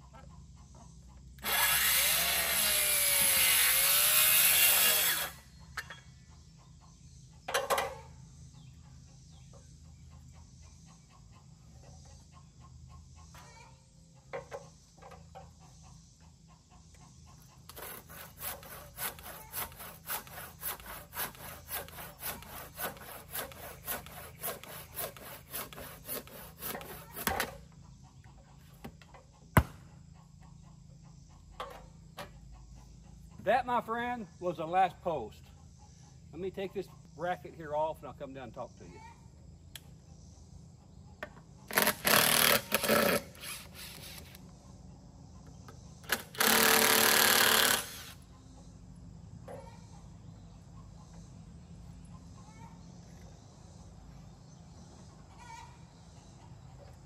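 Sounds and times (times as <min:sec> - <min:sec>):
handsaw strokes: 0:01.4 - 0:05.4, 0:17.7 - 0:27.5, 0:41.7 - 0:44.4
circular saw cutting wood: 0:01.4 - 0:05.5, 0:17.7 - 0:27.6, 0:41.7 - 0:44.4, 0:46.1 - 0:48.2.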